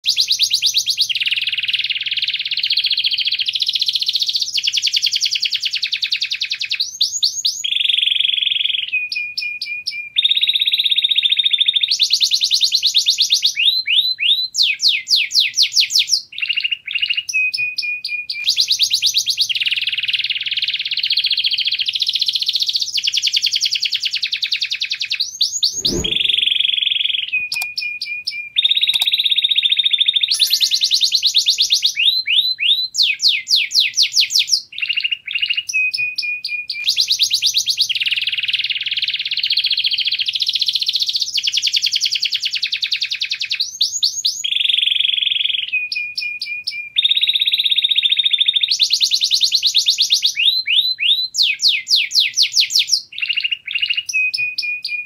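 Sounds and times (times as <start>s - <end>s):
low thump: 25.7s - 26.8s
canary singing trills: 28.6s - 32.8s.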